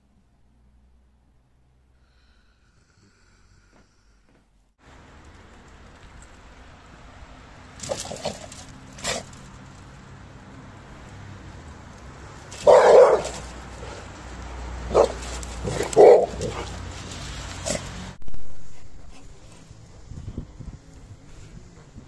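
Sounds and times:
dog barking: 12.6 - 13.5, 14.9 - 16.7.

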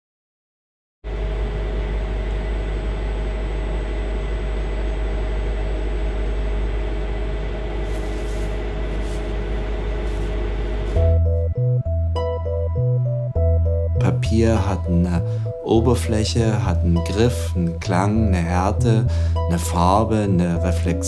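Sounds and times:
machine rumble and hum: 1.1 - 12.2, 13.6 - 21.0
short rustles: 7.7 - 11.1.

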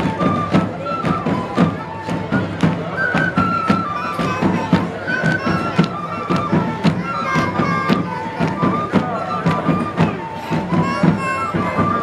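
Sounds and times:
flute melody: 0.0 - 12.0
steady drum beats: 0.0 - 12.0.

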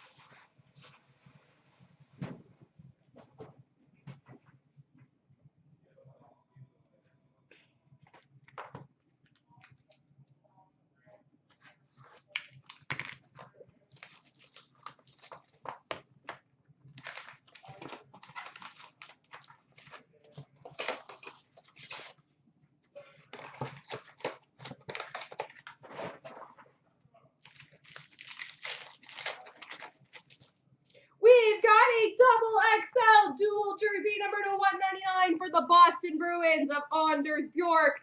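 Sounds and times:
wrappers crinkling and ripping: 12.1 - 15.8, 16.9 - 22.2, 23.0 - 26.4, 27.4 - 30.6.

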